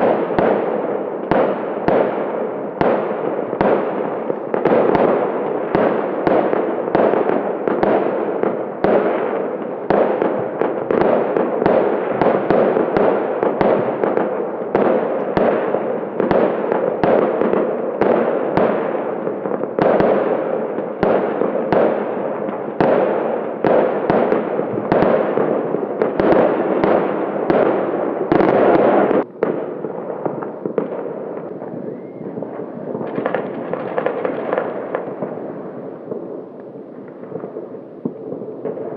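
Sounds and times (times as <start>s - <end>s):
firecrackers crackling: 0.0s - 38.9s
fireworks sharp bangs: 0.0s - 38.9s.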